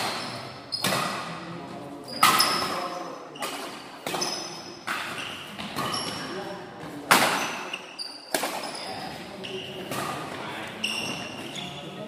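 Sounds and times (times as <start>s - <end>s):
rackets striking shuttlecock: 3.4s - 6.3s, 7.1s - 8.8s.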